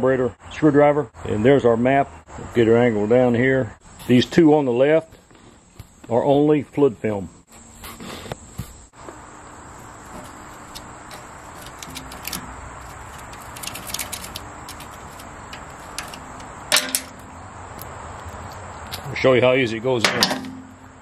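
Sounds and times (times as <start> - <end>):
background hiss: 1.7 - 21.0
screwdriver scraping screw head: 10.7 - 17.2.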